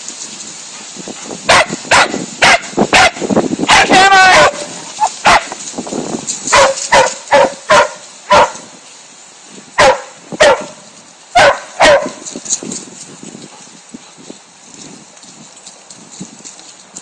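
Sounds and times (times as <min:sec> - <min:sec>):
dog barking: 0:01.5 - 0:05.6, 0:06.5 - 0:08.7, 0:09.8 - 0:10.8, 0:11.4 - 0:12.2.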